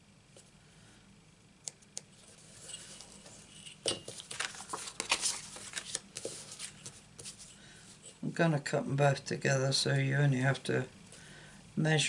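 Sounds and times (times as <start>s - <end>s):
card sliding and rustling: 2.2s - 7.6s.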